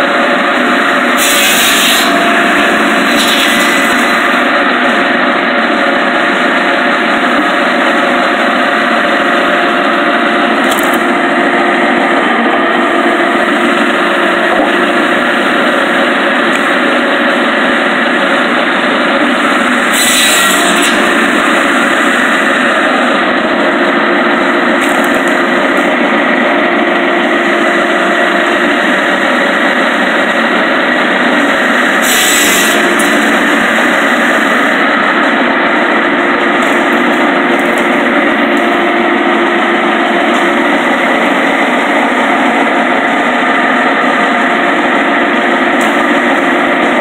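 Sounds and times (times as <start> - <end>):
log saw-splitter running: 0.0 - 47.0.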